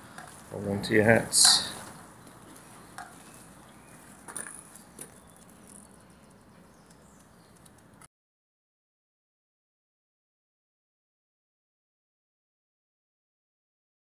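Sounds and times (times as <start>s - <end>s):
faint outdoor ambience: 0.0s - 8.1s.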